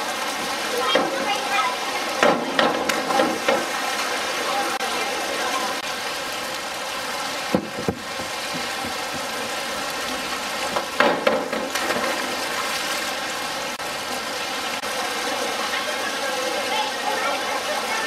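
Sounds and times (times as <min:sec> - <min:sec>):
diving board knocking: 0:00.9 - 0:01.5, 0:02.2 - 0:03.8, 0:07.5 - 0:09.6, 0:10.2 - 0:12.4.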